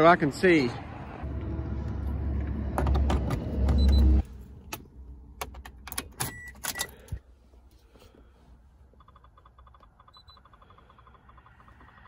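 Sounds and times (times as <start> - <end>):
low rumble of wind: 0.0 - 6.5.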